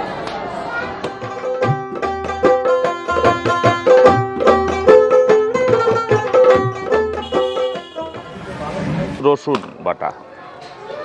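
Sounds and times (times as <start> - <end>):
plucked string melody: 1.0 - 8.4
hand drum beat: 1.1 - 8.4.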